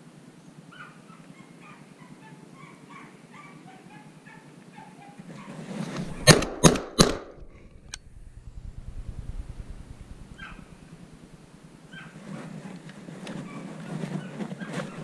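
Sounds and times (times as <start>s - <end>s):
hound yelping: 0.7s - 6.3s, 10.2s - 11.2s, 11.8s - 12.2s, 13.4s - 15.0s
shotgun shots: 6.0s - 7.6s.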